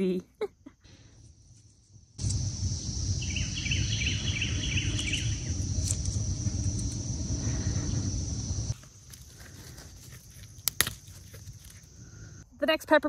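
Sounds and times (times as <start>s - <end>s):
insects droning: 0.0s - 12.6s
songbird chirping: 0.8s - 9.9s
steady low rumble: 0.9s - 8.8s.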